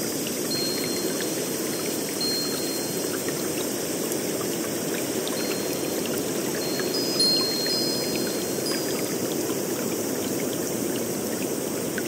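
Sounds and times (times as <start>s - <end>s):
flowing water rushing: 0.0s - 12.0s
water drips and splashes: 0.0s - 12.0s
thin high tones: 6.6s - 9.2s.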